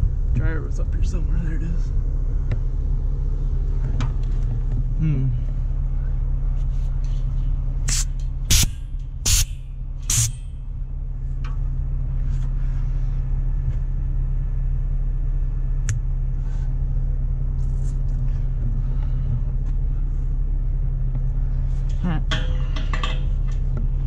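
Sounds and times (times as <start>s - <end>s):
diesel engine idling: 0.0s - 24.0s
sharp air hisses: 7.9s - 10.5s.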